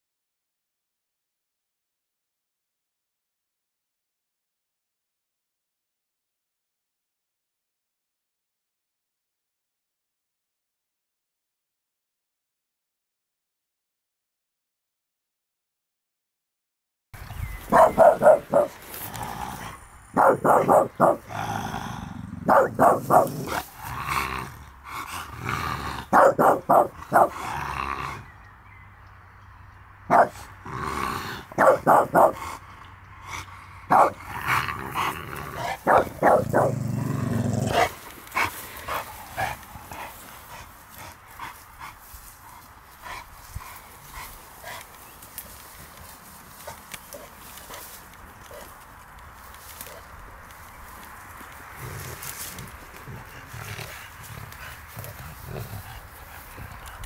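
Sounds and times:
dogs barking: 17.6s - 21.6s, 22.4s - 23.8s, 26.0s - 27.5s, 30.1s - 30.6s, 31.4s - 32.6s, 33.3s - 37.0s, 37.6s - 41.2s.

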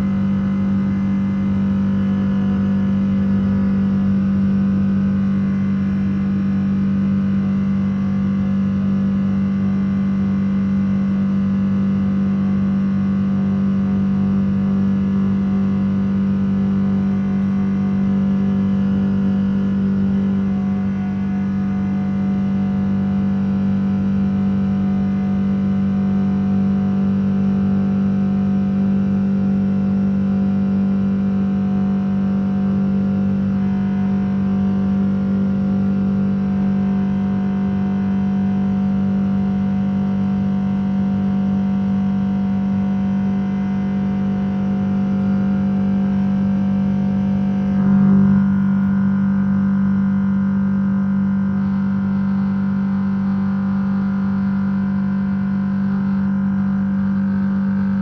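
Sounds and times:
jet engines droning in cabin: 47.2s - 49.9s.

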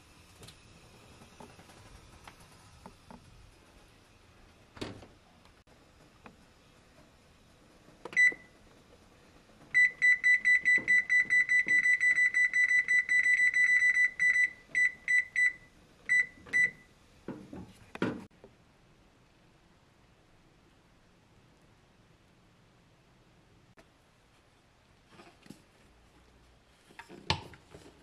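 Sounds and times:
oven control panel beeps: 8.1s - 8.6s, 9.7s - 16.9s.

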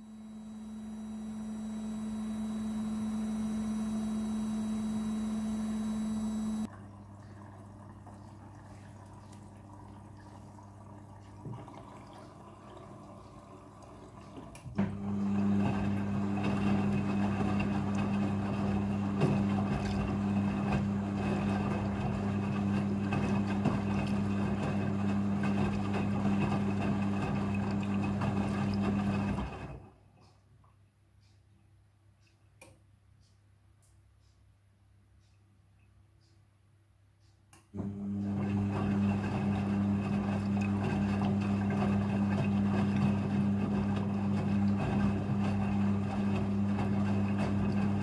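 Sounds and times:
washing machine hum: 0.0s - 30.6s, 37.7s - 48.0s
water rushing and sloshing: 6.7s - 29.3s.

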